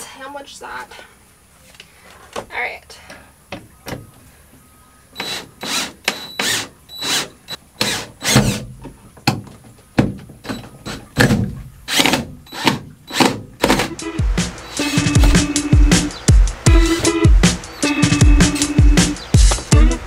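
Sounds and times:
cordless drill driving screws: 5.2 - 8.6, 11.9 - 13.9
music: 13.8 - 20.0.

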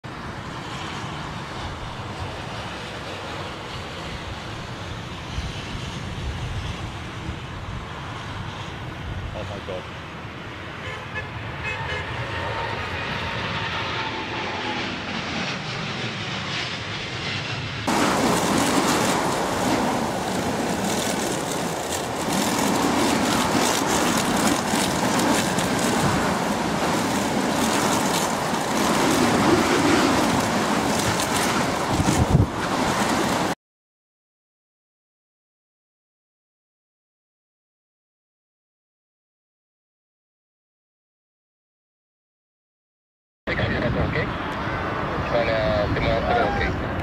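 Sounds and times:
jet engines rushing: 0.1 - 33.6, 43.5 - 47.0.

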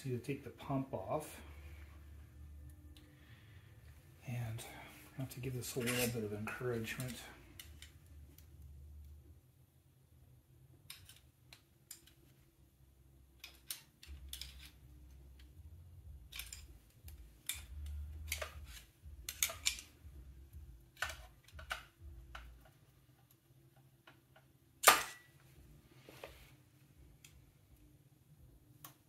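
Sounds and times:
screwdriver scraping metal: 5.7 - 6.2.

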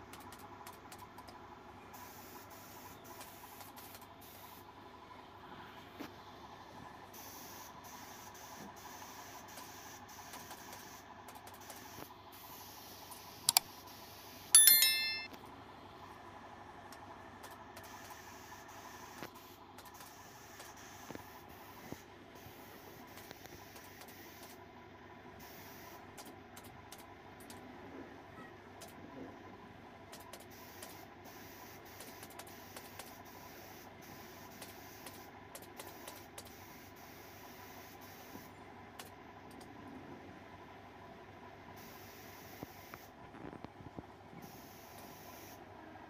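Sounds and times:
bell ding: 14.6 - 15.3.

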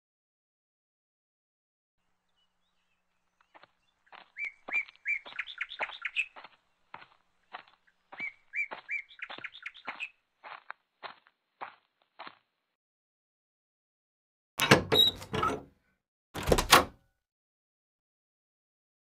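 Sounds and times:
bird chirping: 2.2 - 10.2.

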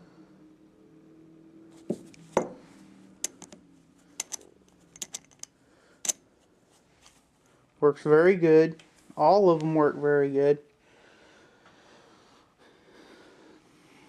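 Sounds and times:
ratchet and socket clicking: 3.2 - 3.6, 4.2 - 6.2.

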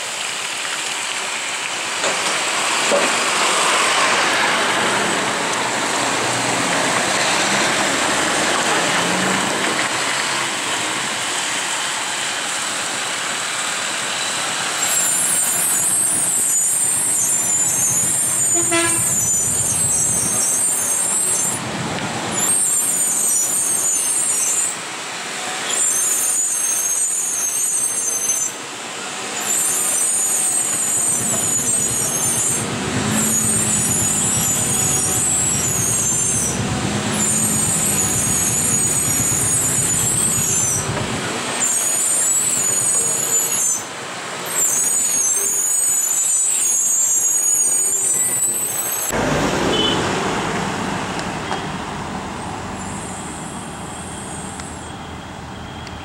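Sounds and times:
loud high-pitched hiss: 1.8 - 21.6, 22.3 - 50.0, 52.4 - 55.9
short horn toot: 18.5 - 19.4, 49.7 - 50.1
lorry diesel engine climbing: 31.2 - 41.5.

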